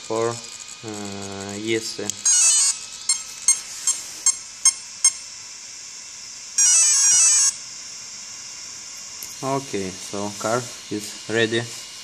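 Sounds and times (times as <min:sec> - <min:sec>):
long loud motor tone: 0:00.0 - 0:12.0
motor short beeps: 0:00.1 - 0:05.3, 0:06.6 - 0:07.6.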